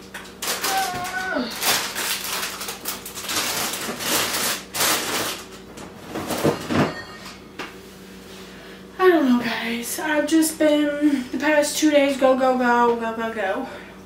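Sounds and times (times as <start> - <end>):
packaging rustling: 0.3 - 5.6.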